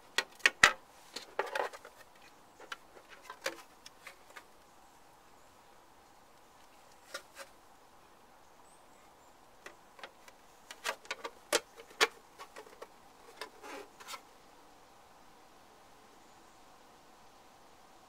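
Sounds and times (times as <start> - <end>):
plastic parts clicking and knocking: 0.1 - 4.5, 9.6 - 14.2.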